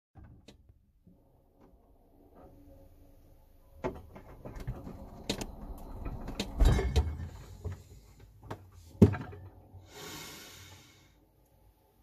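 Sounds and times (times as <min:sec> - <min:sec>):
loud clunk: 0:06.1 - 0:07.7
refrigerator clicks knocks and rattles: 0:08.5 - 0:09.5.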